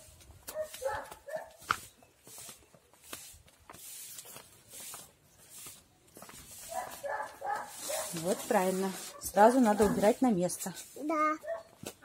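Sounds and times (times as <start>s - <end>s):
dog barking: 0.5s - 1.6s, 6.7s - 8.5s, 9.1s - 10.1s, 11.4s - 11.8s.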